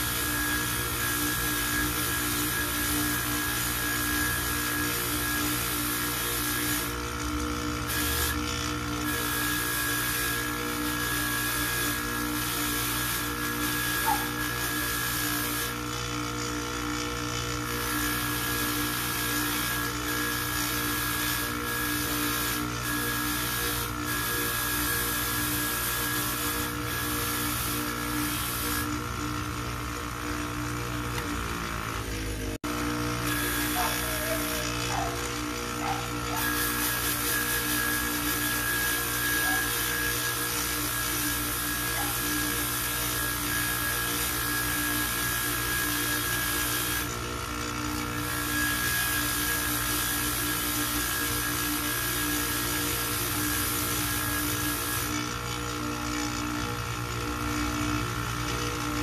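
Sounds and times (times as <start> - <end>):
polishing motor humming: 0.0 - 59.0.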